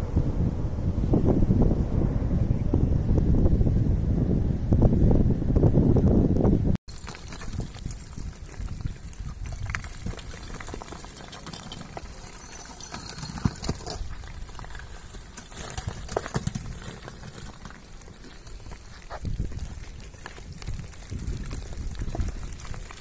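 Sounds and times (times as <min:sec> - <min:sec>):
lava blocks cracking and tumbling: 0:06.9 - 0:23.0.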